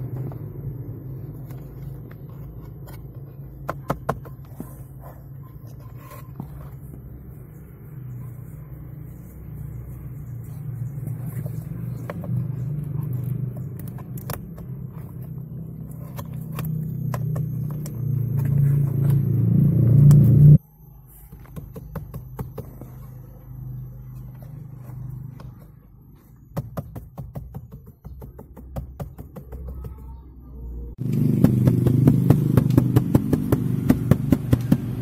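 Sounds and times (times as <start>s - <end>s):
low hum behind dashboard: 0.0s - 27.0s.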